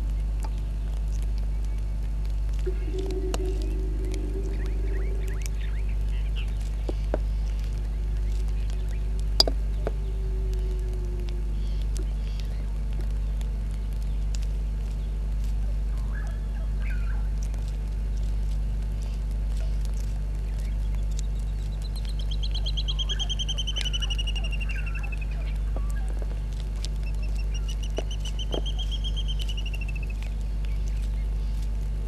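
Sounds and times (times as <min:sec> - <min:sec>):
steady low hum: 0:00.0 - 0:32.0
faint bird calls: 0:02.6 - 0:14.2, 0:15.0 - 0:18.4, 0:19.0 - 0:31.8
bird's fast pulsed trill: 0:22.0 - 0:25.5, 0:27.1 - 0:30.1.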